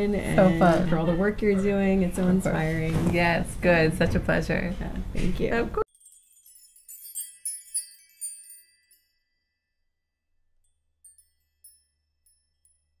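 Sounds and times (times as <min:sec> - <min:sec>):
high bell-like chime: 0:05.9 - 0:09.9, 0:10.7 - 0:13.0.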